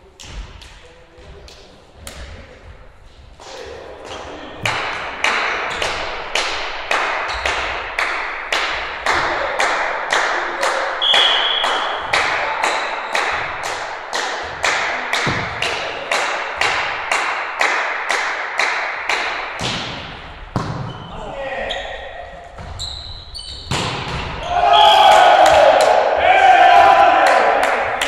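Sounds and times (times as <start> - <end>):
sharp beats echoing in hall: 0.0 - 28.0
whistle blast: 11.0 - 12.0.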